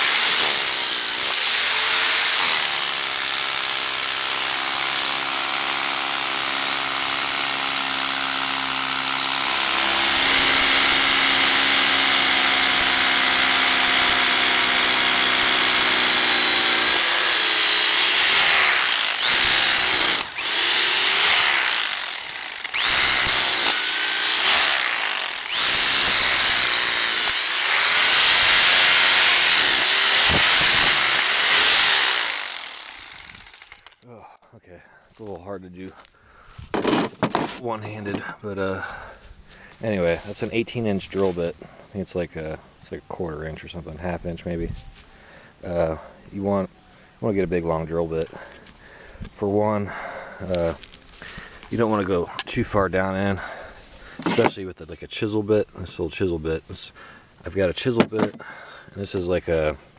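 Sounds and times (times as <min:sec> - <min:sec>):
hammer drill drilling into ground: 0:00.0 - 0:34.0.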